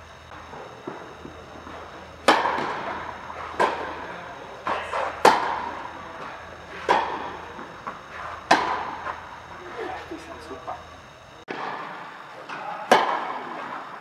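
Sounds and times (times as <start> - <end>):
tennis balls struck by rackets: 0.3 - 9.5, 12.9 - 13.7.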